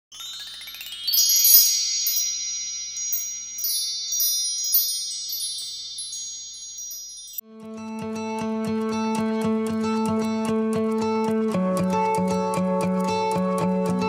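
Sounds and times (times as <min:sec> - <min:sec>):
bell-like chime tones: 0:00.1 - 0:07.4.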